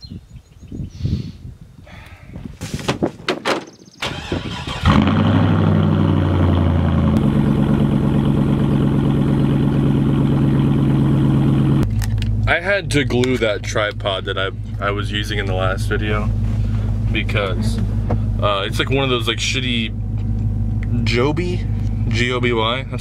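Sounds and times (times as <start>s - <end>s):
knocks and thumps: 2.6s - 3.8s, 17.8s - 18.3s
engine cranking and starting: 3.9s - 6.2s
engine fast idle: 4.0s - 11.8s, 12.4s - 22.4s.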